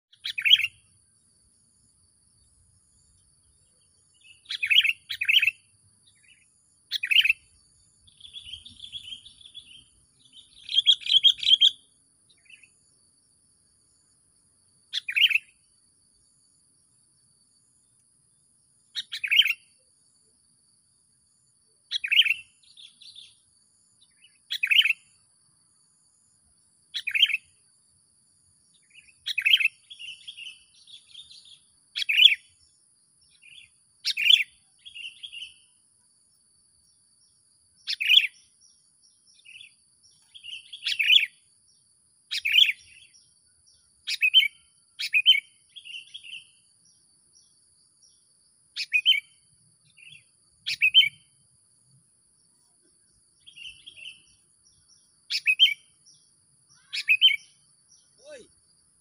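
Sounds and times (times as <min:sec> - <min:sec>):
soft bird twittering: 0:00.1 - 0:01.0, 0:02.4 - 0:13.0, 0:14.9 - 0:15.8, 0:18.9 - 0:19.8, 0:21.9 - 0:25.2, 0:26.9 - 0:27.6, 0:28.6 - 0:35.8, 0:36.8 - 0:51.4, 0:52.5 - 0:58.6
bird calling sharply: 0:56.8 - 0:57.5.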